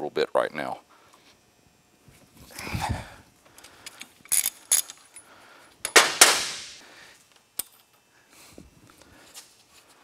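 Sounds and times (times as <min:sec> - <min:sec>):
metal parts clinking: 0:03.9 - 0:06.7.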